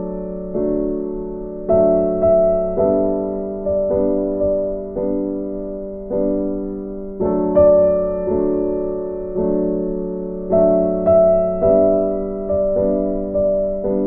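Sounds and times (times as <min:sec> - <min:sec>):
slow piano chords: 0:00.0 - 0:14.0.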